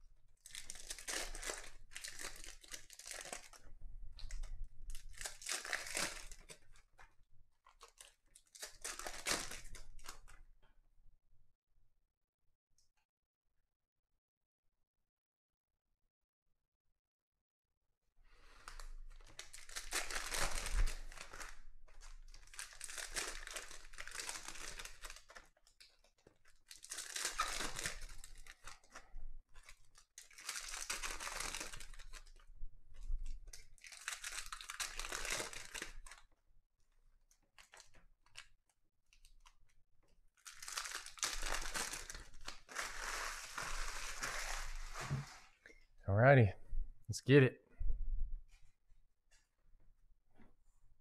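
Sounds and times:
foil packs tearing and crinkling: 0:00.4 - 0:03.6, 0:04.3 - 0:06.7, 0:07.8 - 0:10.3, 0:18.7 - 0:29.0, 0:29.6 - 0:32.4, 0:33.3 - 0:36.2, 0:40.4 - 0:45.5.

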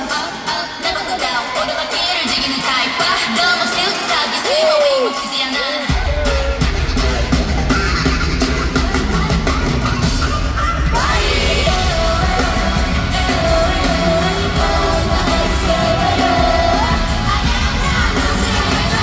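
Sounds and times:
pop concert music with heavy beat: 0:00.0 - 0:19.0
audience shouting: 0:02.9 - 0:09.1.

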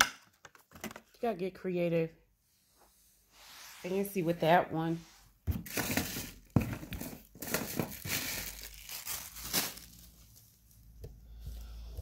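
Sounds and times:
packaging crinkling: 0:05.7 - 0:11.0.

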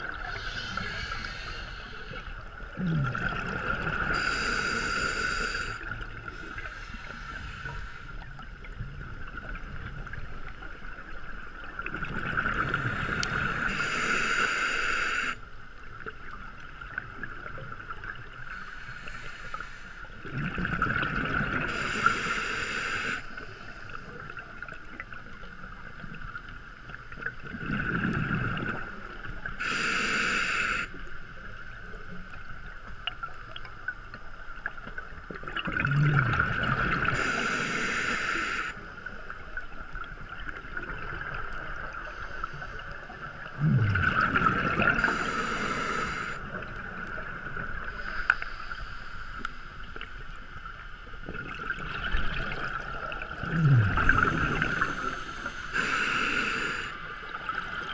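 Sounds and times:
regulator hiss: 0:00.3 - 0:02.4, 0:04.1 - 0:08.2, 0:12.8 - 0:15.4, 0:18.5 - 0:20.1, 0:21.7 - 0:24.1, 0:29.6 - 0:31.0, 0:37.1 - 0:39.0, 0:45.0 - 0:46.6, 0:54.0 - 0:57.2
gurgling exhaled bubbles: 0:02.5 - 0:04.4, 0:11.6 - 0:13.7, 0:20.2 - 0:22.0, 0:27.3 - 0:29.4, 0:35.4 - 0:37.4, 0:43.1 - 0:48.0, 0:51.3 - 0:57.9.

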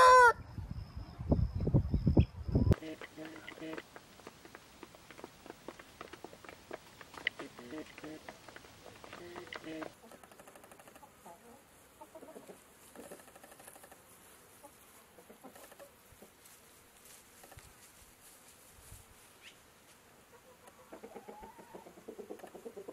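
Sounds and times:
chickens clucking: 0:02.7 - 0:16.5, 0:20.2 - 0:22.9.

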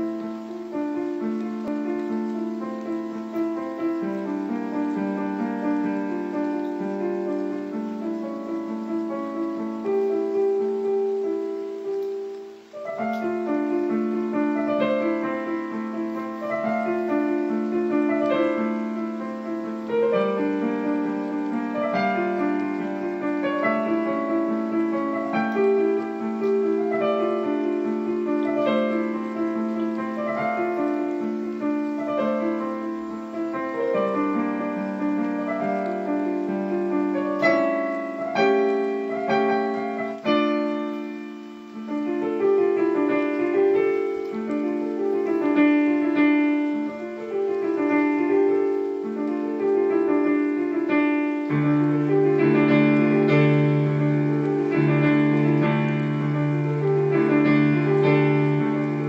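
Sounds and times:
slow solo piano: 0:00.0 - 0:59.0.

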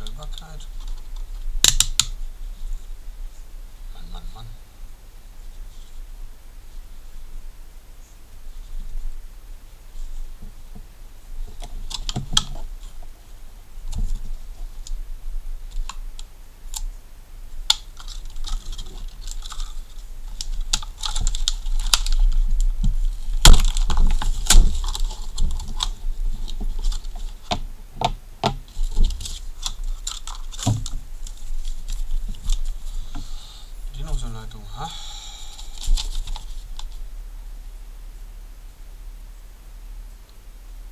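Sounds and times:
sharp plastic crack: 0:00.0 - 0:02.2, 0:17.7 - 0:33.2
plastic packaging crackling: 0:17.7 - 0:27.7, 0:28.4 - 0:33.3, 0:35.4 - 0:37.0.

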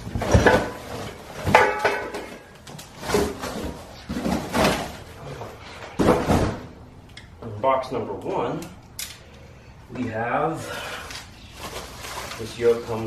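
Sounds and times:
cardboard boxes scraping and knocking: 0:00.0 - 0:06.7.

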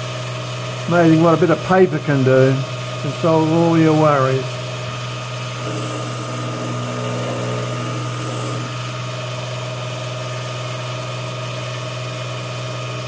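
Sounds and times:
electric motor humming: 0:05.5 - 0:09.5.

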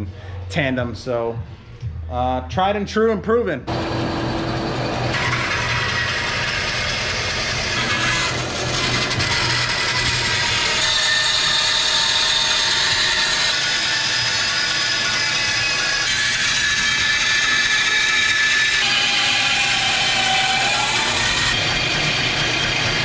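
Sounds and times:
motor hum: 0:03.7 - 0:10.8
bandsaw cutting metal: 0:03.7 - 0:23.0.

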